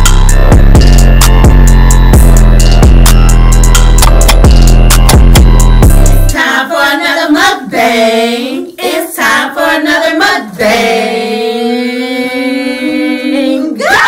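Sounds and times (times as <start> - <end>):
person singing unaccompanied: 6.4 - 14.0.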